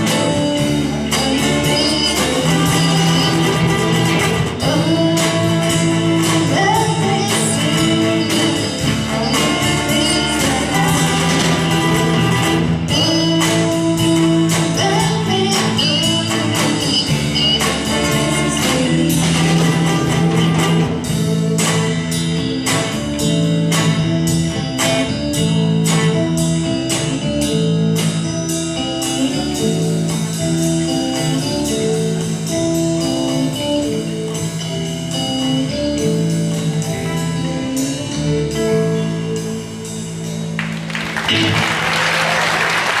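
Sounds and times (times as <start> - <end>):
live rock band playing: 0.0 - 43.0
audience applause: 40.6 - 43.0.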